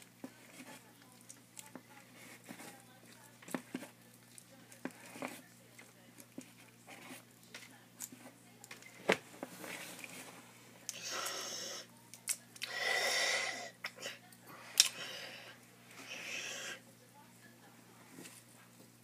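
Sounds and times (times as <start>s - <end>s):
breathy hissing: 10.9s - 11.9s, 12.6s - 16.8s.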